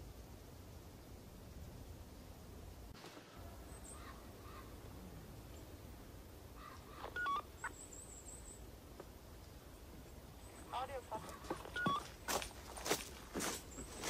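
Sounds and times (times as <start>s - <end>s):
background hiss: 0.0s - 14.0s
phone keypad beeps: 7.2s - 7.4s, 11.7s - 12.1s.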